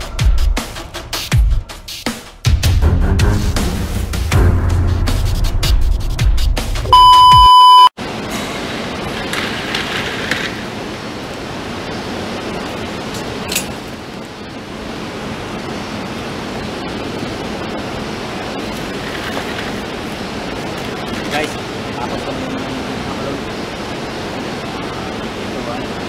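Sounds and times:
electronic test beep: 6.9 - 8.0
steady background hiss: 8.0 - 26.0.

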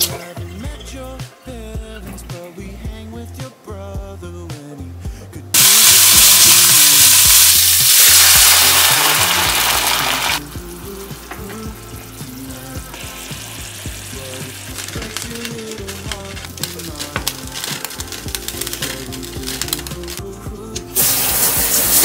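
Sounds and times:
background music: 0.0 - 22.0
food sizzling in frying pan: 5.6 - 20.3, 21.0 - 22.0.

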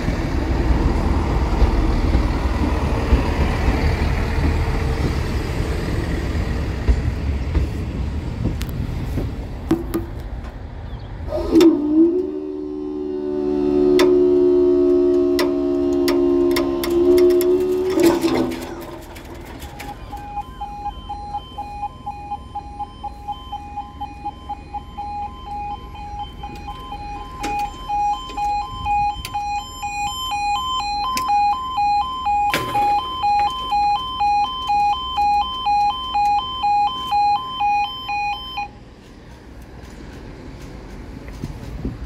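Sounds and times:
two-tone level crossing alarm: 11.4 - 38.8.

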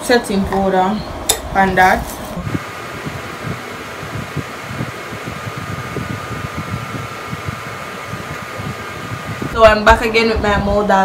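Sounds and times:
room fan whirring: 0.0 - 11.0.

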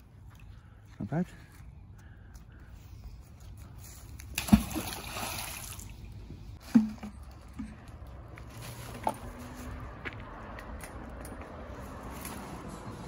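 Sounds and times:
water splashing and trickling: 3.3 - 10.0.

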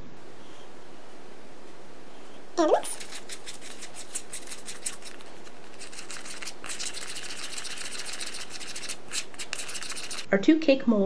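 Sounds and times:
plastic spoon scraping tray: 2.9 - 10.3.

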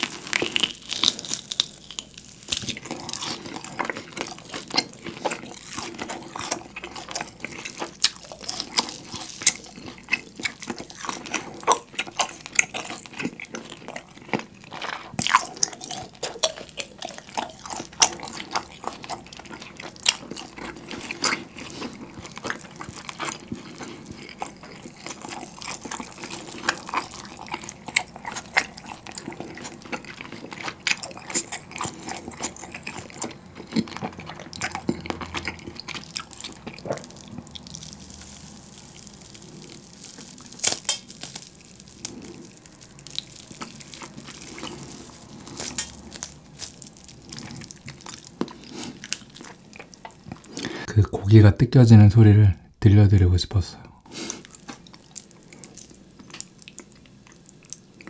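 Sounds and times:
wet chewing of steak: 0.0 - 50.9, 53.9 - 58.0
meat pulled apart by hand: 36.2 - 49.5.

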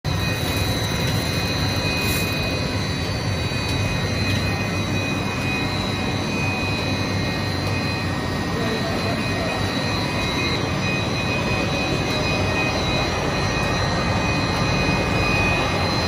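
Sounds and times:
high-pitched machine whines: 0.1 - 16.0
machine low hum: 0.1 - 16.0.

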